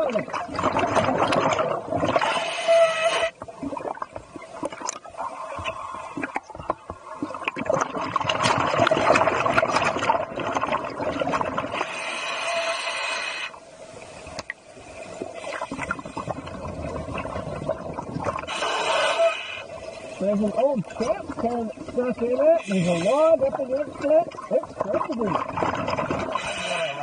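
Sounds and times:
air bubbling underwater: 0:00.1 - 0:02.3, 0:07.1 - 0:11.8, 0:15.3 - 0:18.5, 0:23.9 - 0:27.0
diver breathing through regulator: 0:11.8 - 0:13.6, 0:18.4 - 0:20.2, 0:22.6 - 0:23.3, 0:26.2 - 0:27.0.

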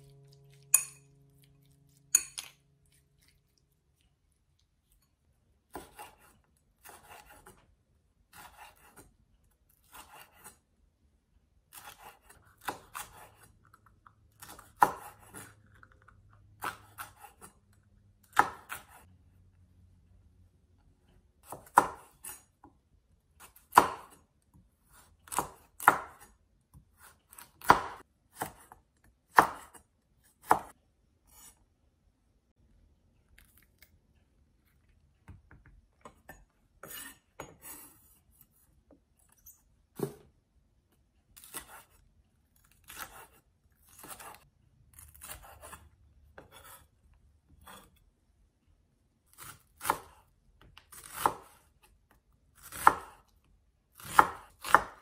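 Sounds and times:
knife chopping on wooden board: 0:05.7 - 0:07.6, 0:14.4 - 0:15.5, 0:18.3 - 0:19.0, 0:21.4 - 0:22.4, 0:23.4 - 0:24.2, 0:24.9 - 0:31.5, 0:39.9 - 0:40.3, 0:42.8 - 0:44.4, 0:45.0 - 0:45.8, 0:46.4 - 0:46.9, 0:49.3 - 0:51.7, 0:52.6 - 0:53.2, 0:53.9 - 0:55.0.

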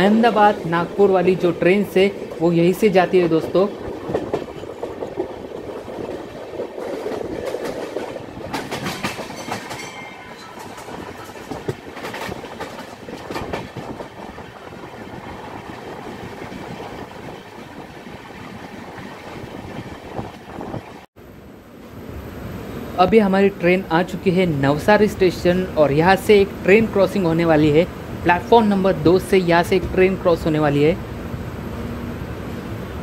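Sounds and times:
wheels clacking over rail joints: 0:00.0 - 0:20.5
train coach rushing rumble: 0:00.0 - 0:21.0.

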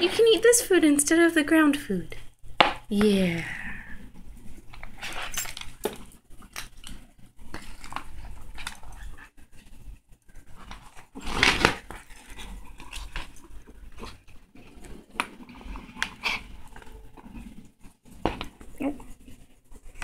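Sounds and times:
kitten chewing and lapping: 0:05.6 - 0:11.2, 0:11.9 - 0:20.0.

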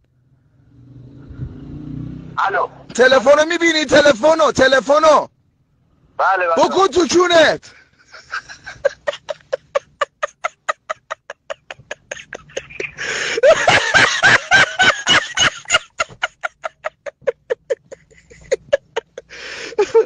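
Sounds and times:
person laughing: 0:07.7 - 0:20.0.

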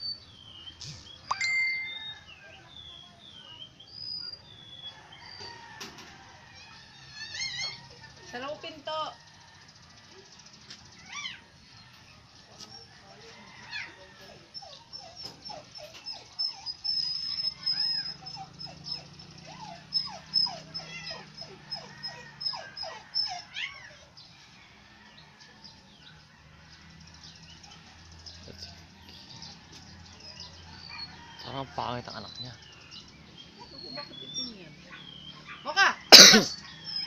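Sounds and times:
puppy crying in high squeaks: 0:06.6 - 0:08.1, 0:11.0 - 0:11.5, 0:14.6 - 0:24.1.

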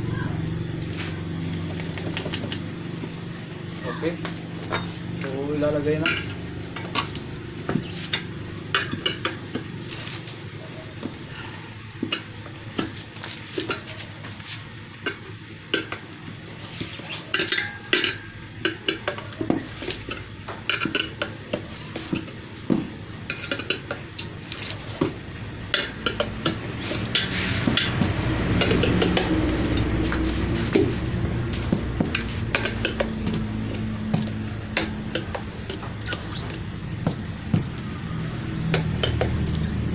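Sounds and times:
tyre lever scraping metal rim: 0:06.2 - 0:10.4, 0:15.8 - 0:22.4, 0:23.3 - 0:33.5, 0:34.8 - 0:36.7.

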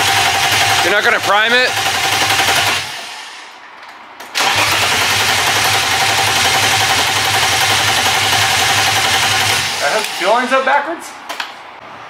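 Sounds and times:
engine starter cranking: 0:04.4 - 0:10.1.

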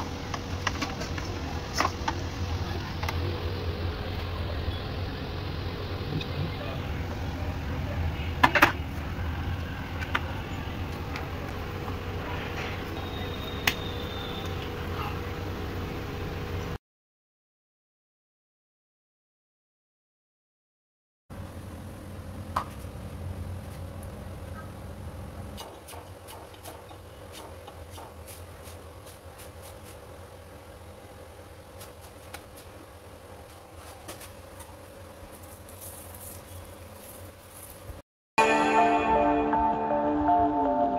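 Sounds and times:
steady low hum: 0:00.0 - 0:16.8.

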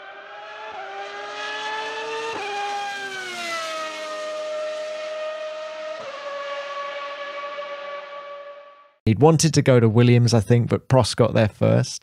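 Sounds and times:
racing car engine revving: 0:00.0 - 0:08.7.

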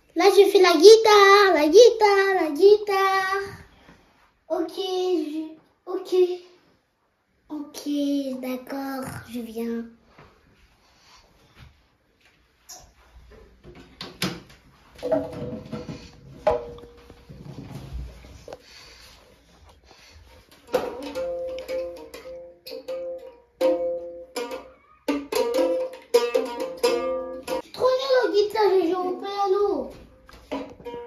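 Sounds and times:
toy ukulele strumming: 0:20.7 - 0:28.0.

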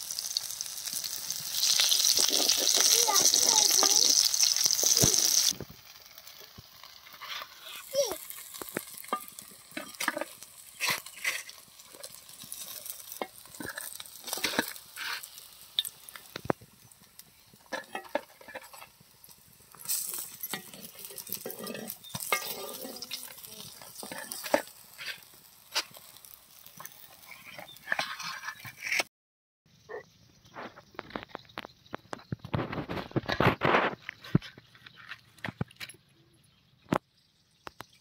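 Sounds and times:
fish frying in oil: 0:00.0 - 0:28.8
metal spatula scraping a pan: 0:06.9 - 0:16.4, 0:17.6 - 0:29.1.

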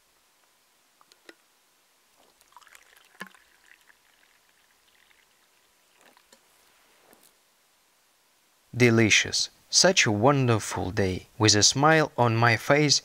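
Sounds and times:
tea trickling into a cup: 0:02.2 - 0:07.2.

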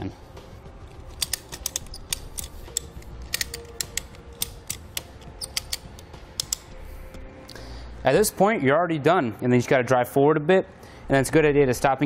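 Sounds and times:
ratchet clicks: 0:01.1 - 0:06.8.

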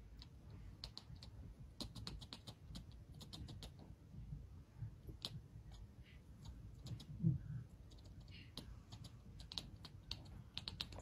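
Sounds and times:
kitten chattering clicks: 0:00.2 - 0:03.8, 0:06.4 - 0:07.1, 0:07.9 - 0:11.0.

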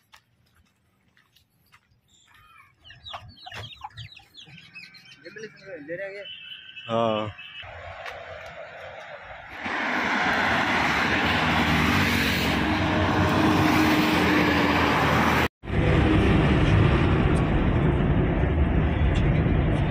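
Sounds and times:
highway traffic passing: 0:02.8 - 0:19.9
road and engine rumble inside vehicle: 0:14.8 - 0:19.9.

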